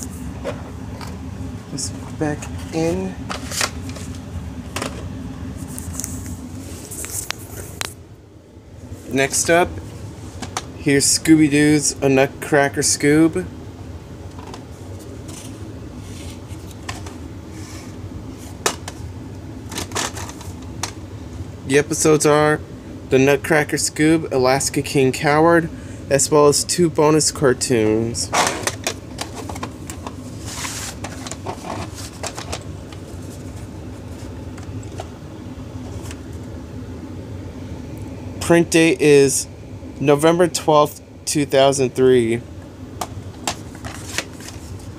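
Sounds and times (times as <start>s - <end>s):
steady low hum: 0.0s - 44.9s
plastic case rubbing and scraping: 19.7s - 20.9s, 28.3s - 35.1s.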